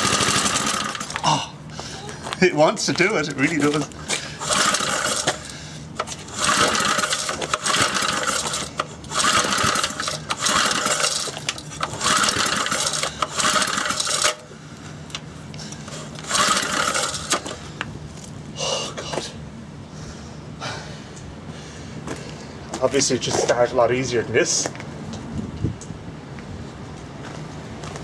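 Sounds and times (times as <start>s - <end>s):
engine pull-start cranking: 0.0s - 1.2s, 4.4s - 14.5s, 15.9s - 17.6s.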